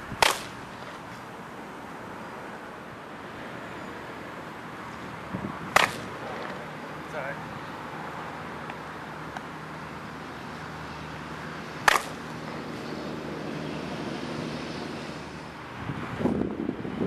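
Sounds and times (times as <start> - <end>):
bat striking baseball: 0.1 - 1.0, 5.7 - 6.6, 11.8 - 12.3.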